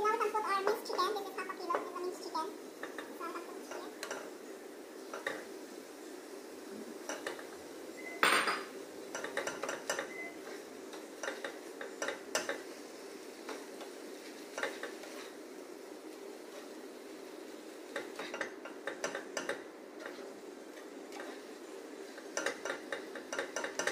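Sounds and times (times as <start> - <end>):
spatula scraping a frying pan: 9.1 - 15.4, 16.3 - 23.9.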